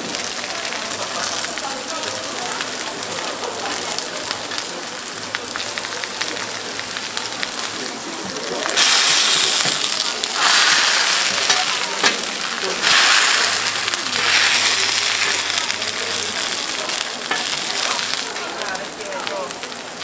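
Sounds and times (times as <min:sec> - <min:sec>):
food sizzling on griddle: 0:00.0 - 0:20.0
loud hiss: 0:08.7 - 0:18.3.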